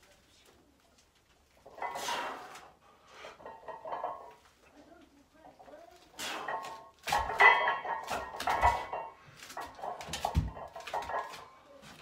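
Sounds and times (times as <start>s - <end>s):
weight plates clanking: 3.3s - 4.4s, 6.3s - 11.6s.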